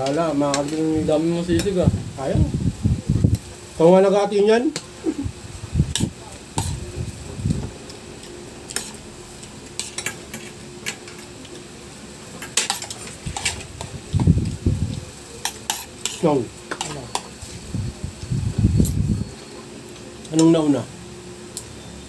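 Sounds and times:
cutlery clinking on plates: 15.4 - 17.3.

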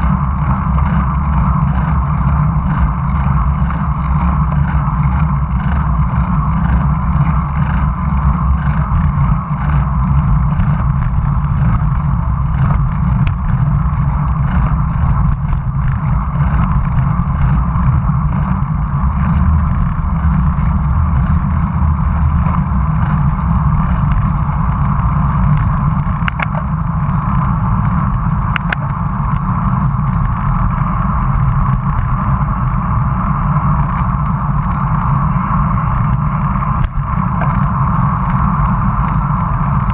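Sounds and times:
wind and road rumble: 0.0 - 39.9
faint ticks: 25.4 - 26.7, 27.3 - 29.5.

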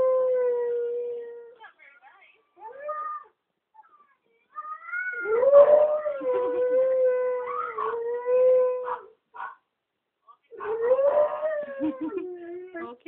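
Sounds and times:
dog howling: 4.9 - 9.1, 10.6 - 11.9.

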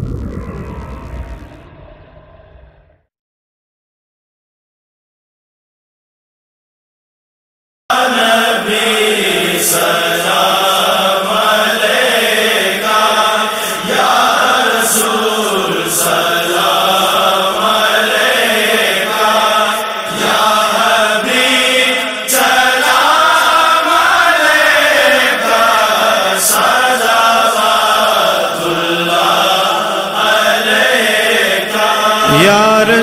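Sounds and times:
men chanting devotional melody: 7.9 - 33.0.

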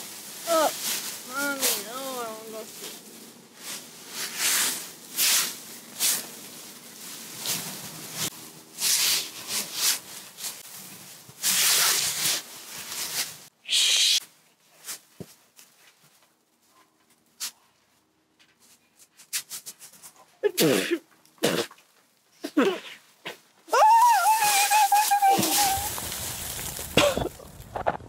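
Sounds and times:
dry leaves rustling and crackling: 0.0 - 13.5, 23.7 - 27.9.

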